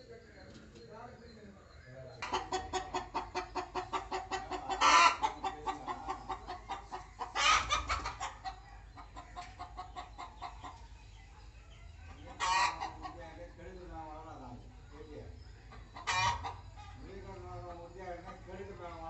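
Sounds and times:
chicken clucking: 0:02.0 - 0:19.0
chicken squawks: 0:02.2 - 0:10.7, 0:12.3 - 0:13.2, 0:15.7 - 0:17.0.

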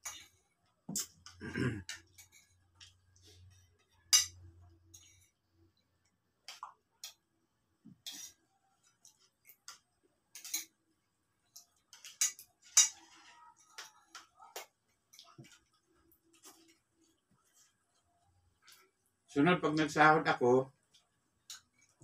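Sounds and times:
spoons clinking on plates: 0:00.0 - 0:00.4, 0:01.0 - 0:03.0, 0:03.8 - 0:05.4, 0:09.0 - 0:10.8, 0:11.5 - 0:15.6.

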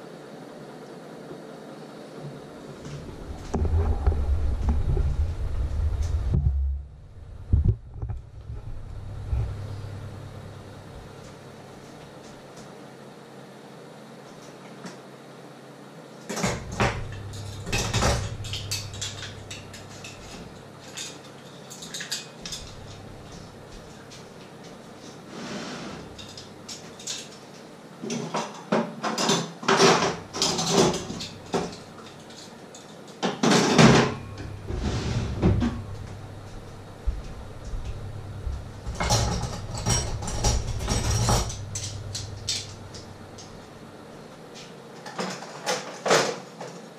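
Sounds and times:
pots and dishes clattering: 0:16.3 - 0:24.2, 0:28.1 - 0:34.6, 0:38.9 - 0:43.5.

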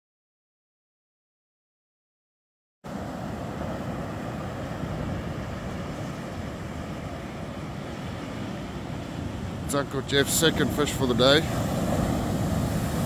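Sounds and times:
surf breaking on beach: 0:02.9 - 0:13.0
wind rumble on microphone: 0:10.4 - 0:13.0.

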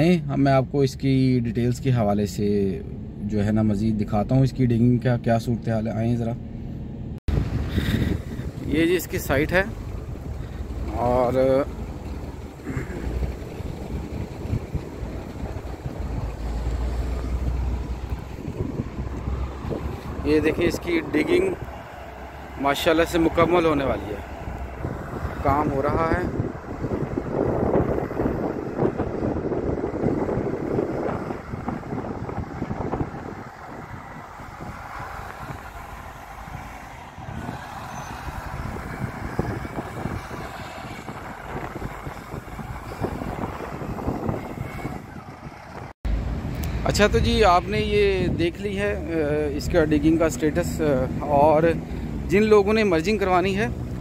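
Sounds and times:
diesel machinery rumbling: 0:00.0 - 0:54.0
wind buffeting microphone: 0:07.3 - 0:54.0.

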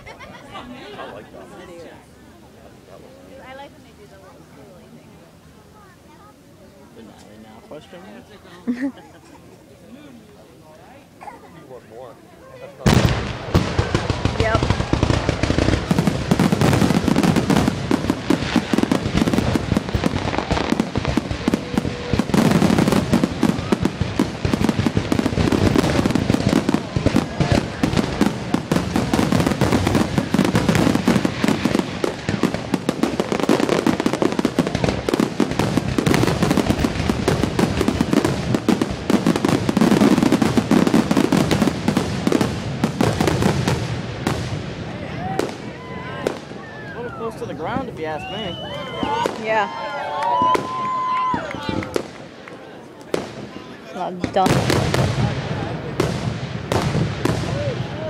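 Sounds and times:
fireworks bursting and crackling: 0:11.7 - 0:58.0.

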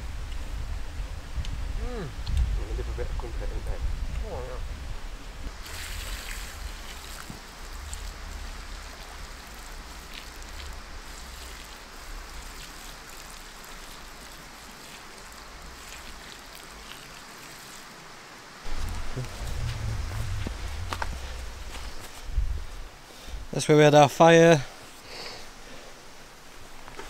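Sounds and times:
water pouring onto hot ashes: 0:05.5 - 0:22.7.

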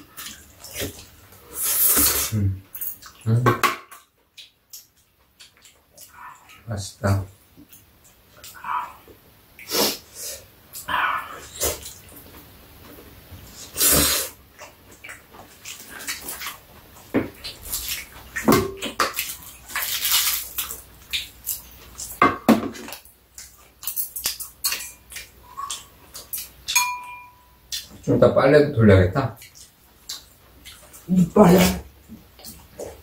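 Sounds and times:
chewing: 0:04.3 - 0:06.6, 0:14.5 - 0:18.4, 0:19.0 - 0:22.2, 0:22.9 - 0:26.8, 0:29.4 - 0:31.1
chopsticks and spoons clicking on bowls: 0:23.4 - 0:27.9.

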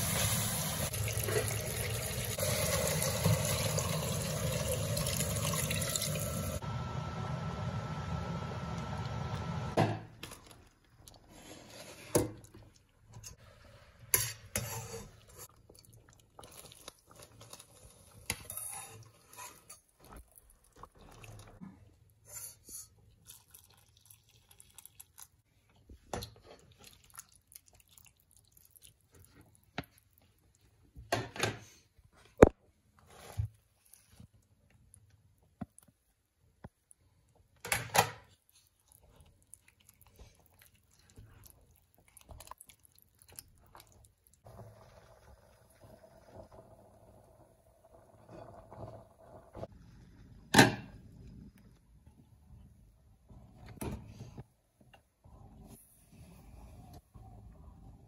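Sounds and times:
pot of broth boiling: 0:00.0 - 0:09.8, 0:43.4 - 0:50.0.

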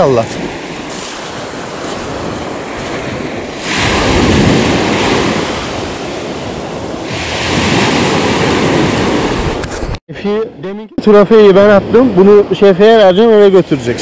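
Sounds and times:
sea water rushing at boat: 0:00.0 - 0:09.7
wind rushing: 0:00.0 - 0:10.0.

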